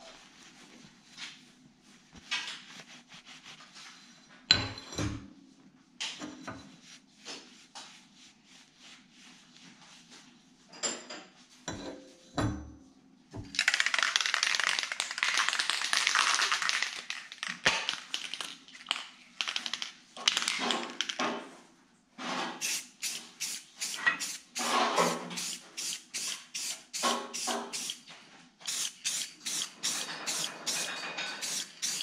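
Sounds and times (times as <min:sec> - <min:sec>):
cloth rubbing: 0:00.0 - 0:04.0.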